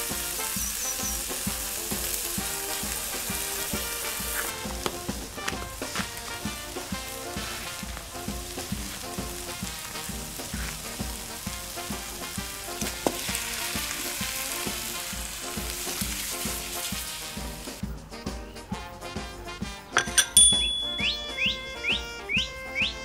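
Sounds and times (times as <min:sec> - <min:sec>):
onions sizzling in a pan: 0:00.0 - 0:17.8
background music with steady beat: 0:00.0 - 0:23.0
beans tipped into hot pan: 0:12.8 - 0:13.4, 0:20.0 - 0:20.5.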